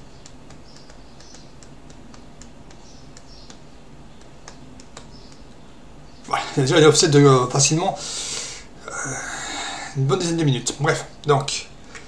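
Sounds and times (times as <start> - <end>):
low steady hum: 0.0 - 12.0
faint sharp clicks: 0.2 - 5.6.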